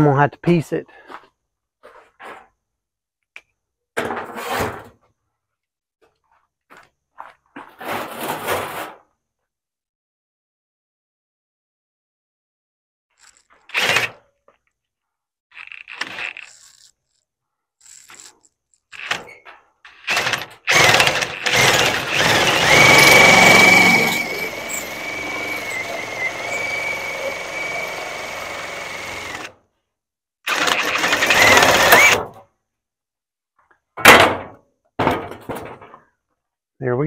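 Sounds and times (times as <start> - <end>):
power tool whining: 19.9 - 29.6, 30.5 - 32.2.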